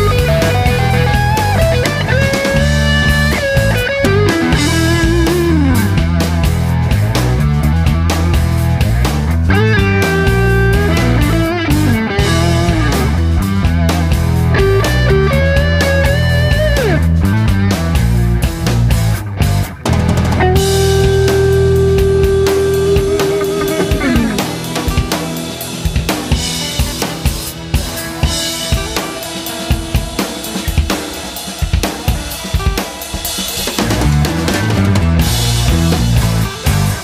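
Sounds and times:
rock music: 0.0s - 37.0s.

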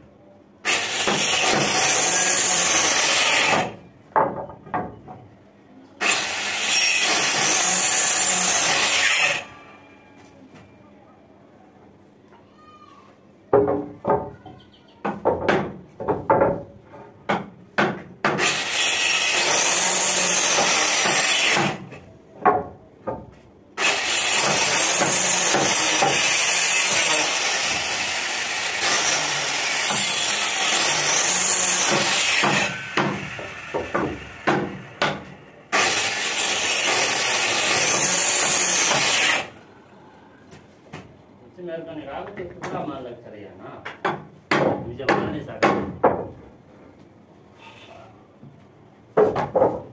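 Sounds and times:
angle grinder cutting wood: 0.7s - 3.8s, 6.0s - 9.5s, 18.4s - 21.8s, 23.8s - 35.0s, 35.7s - 39.6s
short wooden knocks: 13.5s - 18.4s, 49.1s - 49.9s.

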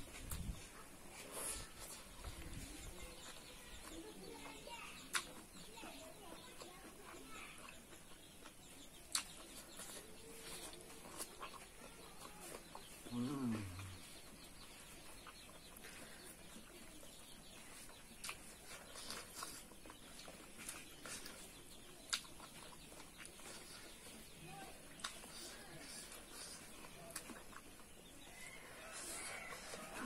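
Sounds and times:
lip smacks: 5.0s - 5.5s, 9.0s - 13.0s, 18.2s - 24.0s
person chewing: 5.1s - 5.5s, 6.5s - 16.7s, 17.6s - 30.0s.

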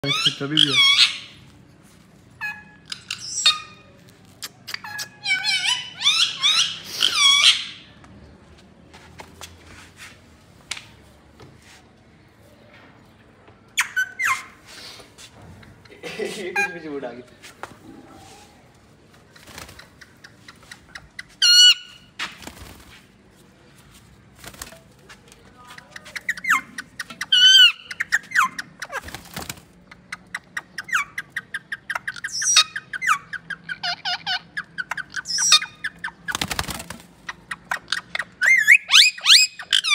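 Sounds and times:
parrot squawking: 0.0s - 1.4s, 4.7s - 7.9s, 21.4s - 22.0s, 26.2s - 29.0s, 30.8s - 36.0s, 37.6s - 39.9s
parakeet squawk: 4.8s - 7.8s, 37.8s - 39.9s
soft taps and rustles: 8.0s - 11.9s.

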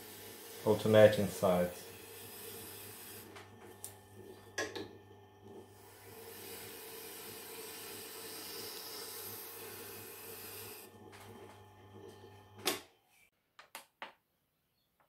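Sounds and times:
steel blade hissing on felt wheel: 0.0s - 3.4s, 5.8s - 10.9s
motor hum: 0.0s - 12.7s.

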